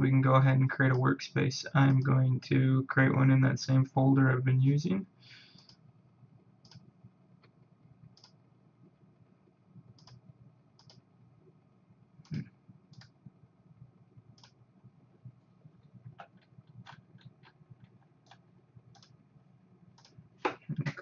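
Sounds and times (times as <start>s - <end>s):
computer mouse clicking: 6.6s - 6.9s, 8.1s - 8.4s, 9.9s - 10.2s, 10.8s - 11.0s, 12.2s - 13.2s, 14.4s - 14.6s, 16.1s - 19.2s, 20.0s - 20.2s.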